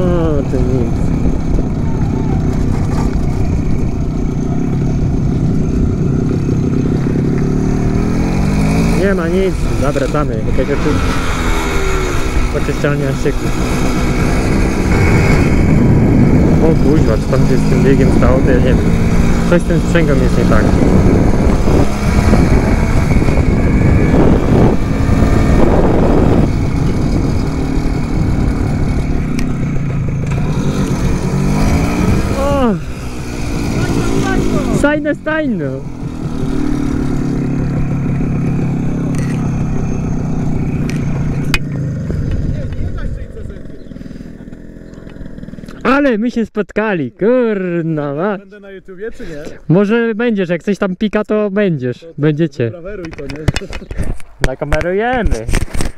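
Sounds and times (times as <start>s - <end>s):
two-stroke motorcycle engine revving: 0.0s - 46.2s
wind on microphone: 13.8s - 19.5s, 20.2s - 34.8s.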